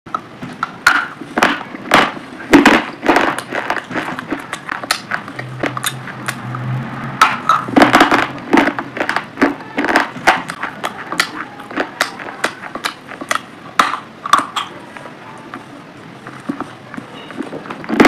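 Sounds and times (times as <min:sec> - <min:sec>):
wet mouth sounds: 0:03.4 - 0:06.7, 0:10.4 - 0:14.8.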